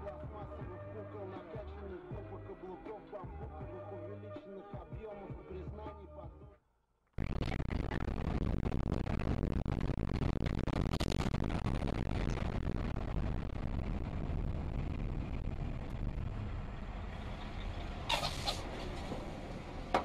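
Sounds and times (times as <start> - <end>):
car road rumble: 11.2 - 20.0.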